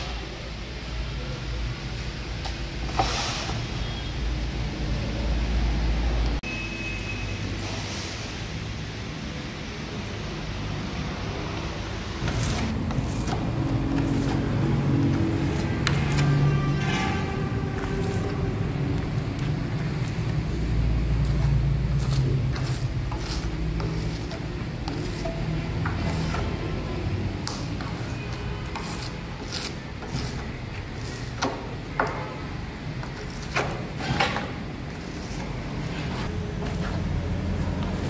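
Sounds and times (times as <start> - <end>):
scraping and rubbing: 12.2 - 27.1, 27.7 - 32.1, 33.0 - 38.0.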